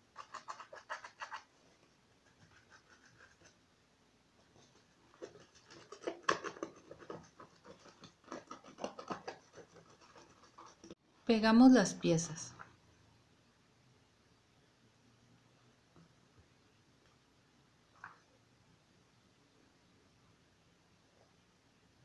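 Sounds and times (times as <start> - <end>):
paintbrush scratching on paper: 0.0 - 1.5, 2.1 - 3.6, 4.4 - 11.0.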